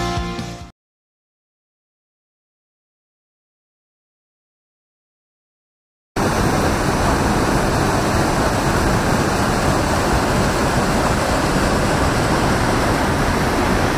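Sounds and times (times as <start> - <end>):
waterfall rushing into pool: 6.2 - 13.9.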